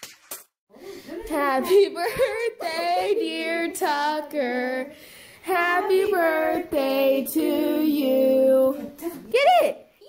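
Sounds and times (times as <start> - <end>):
person singing in a high voice: 1.0 - 9.0.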